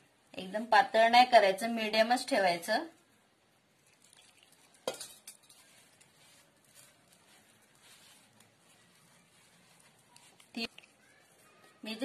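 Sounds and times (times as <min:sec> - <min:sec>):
hands squishing batter: 0:03.0 - 0:12.0.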